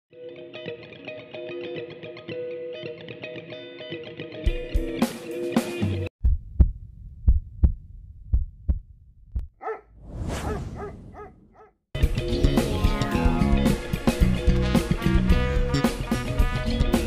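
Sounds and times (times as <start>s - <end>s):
guitar music: 0.1s - 6.0s, 12.0s - 17.0s
low regular thumps: 6.2s - 9.6s
short dog barks: 9.6s - 11.7s
whoosh: 10.0s - 11.5s.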